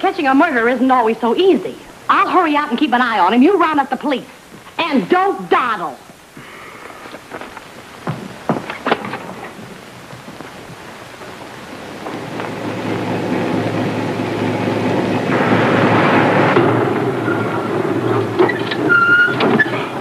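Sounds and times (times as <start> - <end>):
road noise: 7.0 - 20.0.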